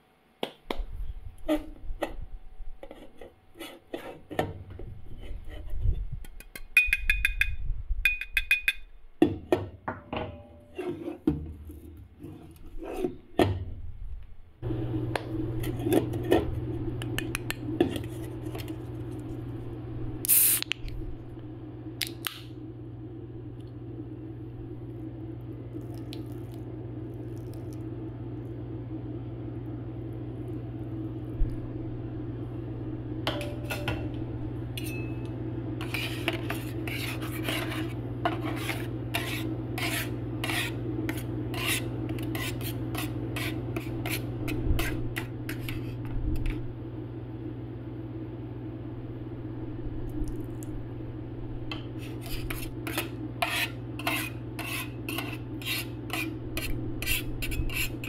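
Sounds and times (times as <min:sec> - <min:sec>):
steady low hum: 0:00.0 - 0:58.0
metal spatulas tapping and scraping: 0:06.2 - 0:09.6, 0:33.3 - 0:34.2, 0:34.8 - 0:46.6, 0:51.7 - 0:58.0.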